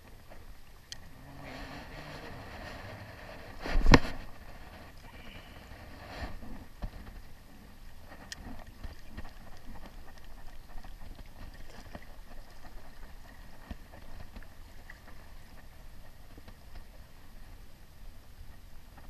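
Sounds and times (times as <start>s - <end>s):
low rumble: 0.0s - 9.8s
waves lapping against rocks: 0.0s - 19.0s.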